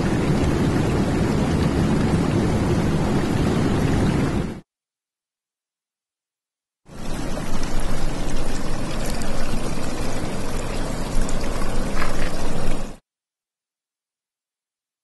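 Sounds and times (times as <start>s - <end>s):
running water: 0.0s - 4.5s, 6.9s - 13.0s.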